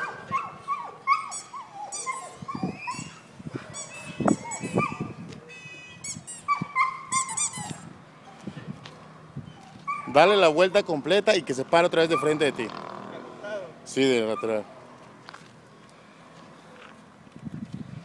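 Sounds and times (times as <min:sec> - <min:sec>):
dog whining and yelping: 0:00.0 - 0:05.2, 0:06.0 - 0:08.6, 0:09.4 - 0:10.3.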